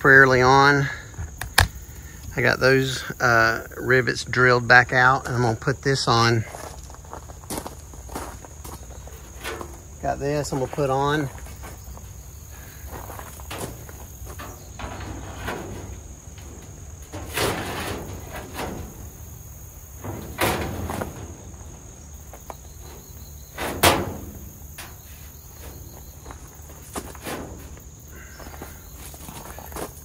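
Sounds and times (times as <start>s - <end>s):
high insect-like chirr: 6.0s - 30.0s
metal panel knocks and clunks: 9.2s - 28.6s.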